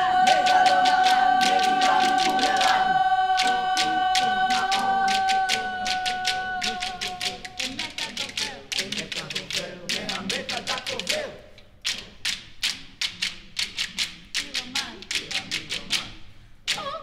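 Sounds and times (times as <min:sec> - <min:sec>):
voices sliding in pitch: 0:00.0 - 0:11.3
choir making percussive clicks: 0:00.0 - 0:17.0.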